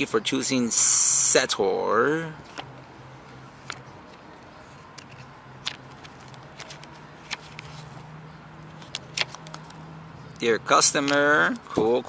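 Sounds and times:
paper pages turning: 3.5s - 9.9s.

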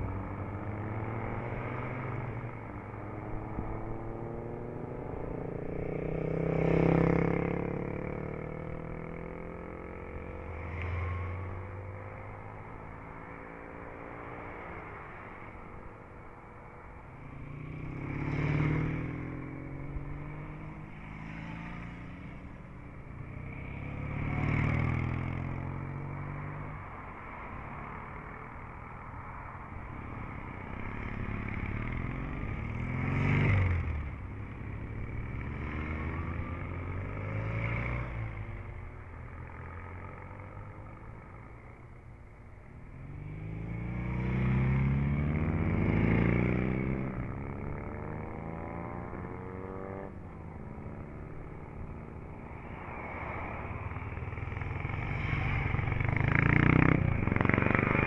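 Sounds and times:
cars driving past: 0.0s - 58.0s
motorcycles driving past: 0.0s - 58.0s.

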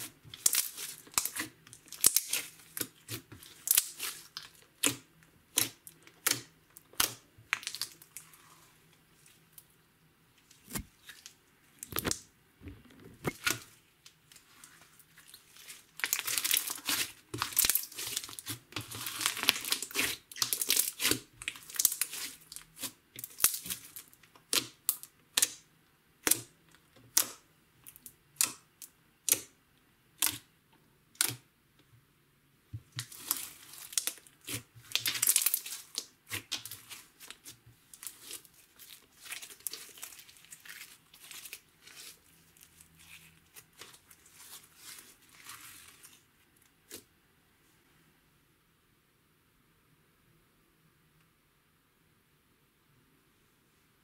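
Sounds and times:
slime crackling and popping: 0.0s - 8.2s, 15.2s - 25.6s, 26.2s - 26.5s, 32.9s - 46.2s.

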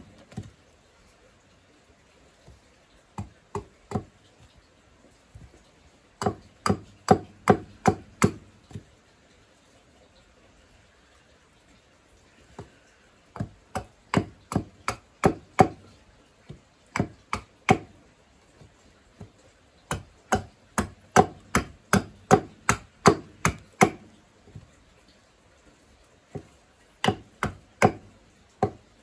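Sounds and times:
hatchet chopping wood: 0.0s - 0.5s, 3.2s - 4.2s, 6.2s - 8.9s, 13.3s - 18.0s, 19.9s - 24.6s, 26.3s - 28.9s.

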